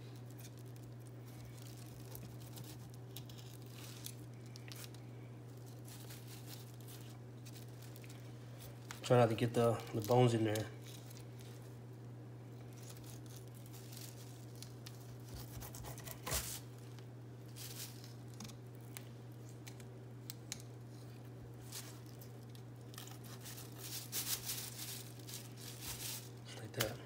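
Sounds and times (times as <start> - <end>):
plastic sheeting crinkling: 0.0 - 11.7, 12.6 - 15.3, 17.5 - 18.3, 21.6 - 27.0.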